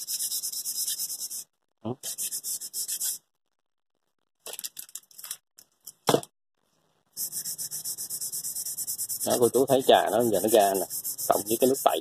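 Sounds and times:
sandpaper scrubbing metal: 0:00.0 - 0:03.2, 0:07.2 - 0:12.0.

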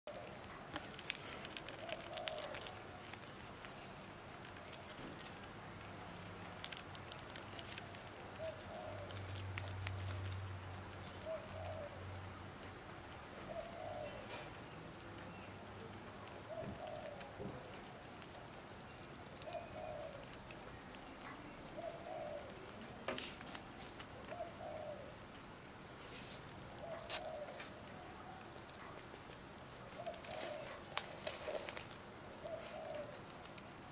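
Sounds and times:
rat chewing with crunching clicks: 0:00.1 - 0:33.9
pigeon cooing: 0:01.7 - 0:03.2, 0:08.2 - 0:10.3, 0:11.0 - 0:12.4, 0:13.2 - 0:18.4, 0:19.3 - 0:23.1, 0:24.0 - 0:25.3, 0:26.7 - 0:29.1, 0:29.8 - 0:33.6.

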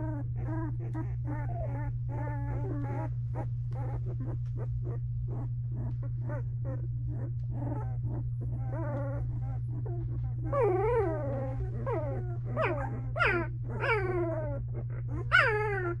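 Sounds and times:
puppies whimpering and squealing: 0:00.0 - 0:16.0
steady low hum: 0:00.0 - 0:16.0.

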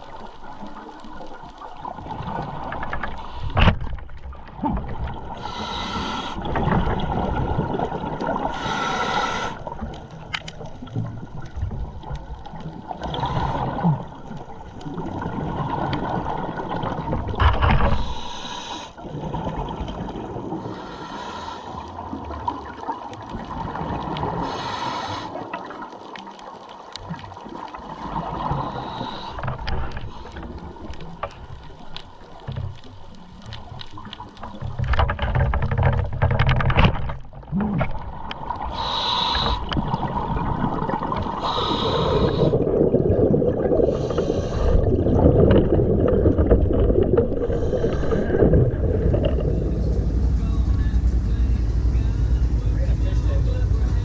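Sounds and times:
faint crackling clicks: 0:00.0 - 0:19.0, 0:20.7 - 0:42.7, 0:43.5 - 0:49.6
underwater noise: 0:00.0 - 0:54.0
diver regulator bubbling surge: 0:34.7 - 0:54.0.

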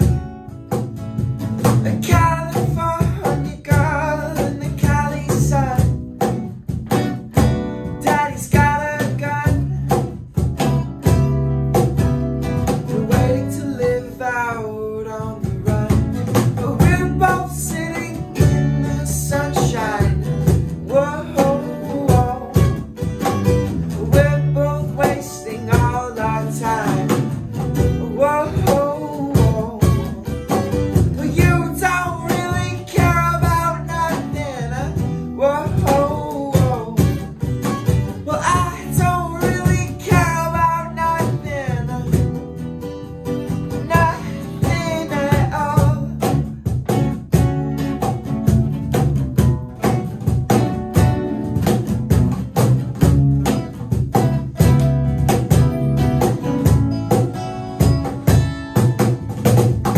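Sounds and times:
cajon beat: 0:00.0 - 0:59.9
electric bass: 0:00.0 - 0:59.9
strummed acoustic guitars: 0:00.0 - 0:59.9
man singing lead: 0:01.8 - 0:06.0, 0:08.0 - 0:10.2, 0:12.8 - 0:23.0, 0:23.8 - 0:37.5, 0:38.1 - 0:42.5, 0:43.7 - 0:46.5.

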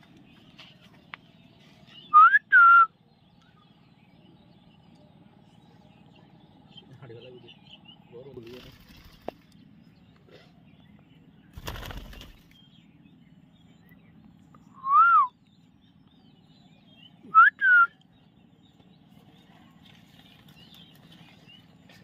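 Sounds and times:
wings fluttering: 0:08.3 - 0:09.6, 0:11.5 - 0:12.6, 0:19.1 - 0:22.0.

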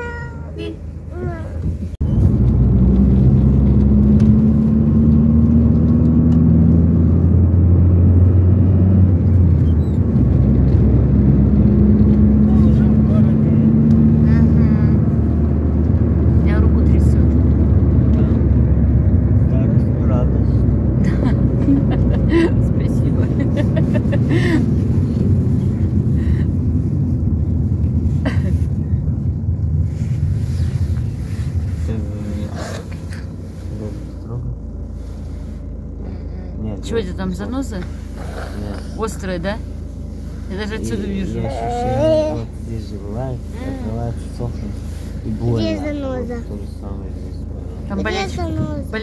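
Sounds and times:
car engine hum: 0:00.0 - 0:49.0
road noise: 0:00.0 - 0:49.0.

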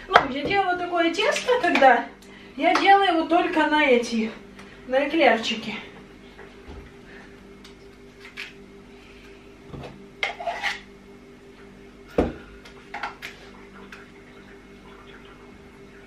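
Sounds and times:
steady low hum: 0:00.0 - 0:16.0
utensils scraping metal tray: 0:10.2 - 0:10.9.

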